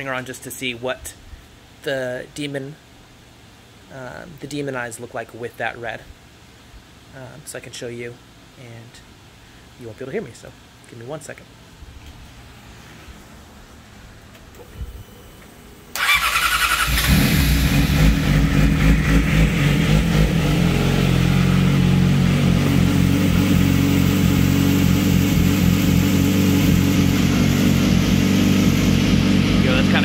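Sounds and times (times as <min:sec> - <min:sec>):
motorcycle engine starting and idling: 0:15.9 - 0:30.0.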